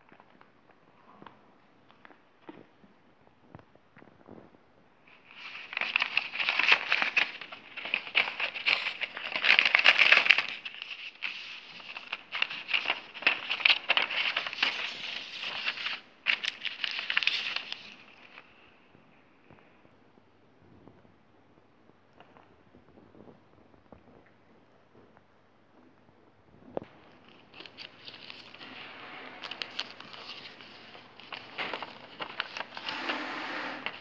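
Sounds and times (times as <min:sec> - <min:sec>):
paper and plastic crinkling: 0:05.1 - 0:18.7, 0:26.8 - 0:34.0.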